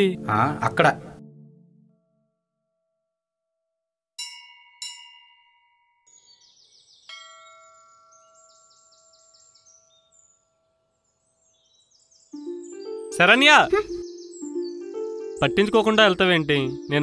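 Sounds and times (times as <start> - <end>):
small birds chirping: 6.1 - 17.0
temple bell ringing: 7.1 - 9.2
lower-toned bell ringing: 7.1 - 9.6.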